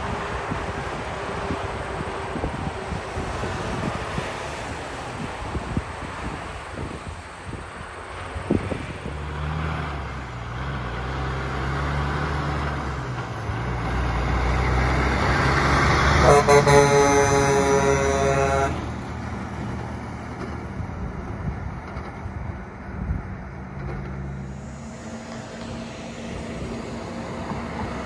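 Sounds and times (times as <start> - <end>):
diesel truck engine: 0.0 - 28.0
truck horn blast: 16.0 - 18.9.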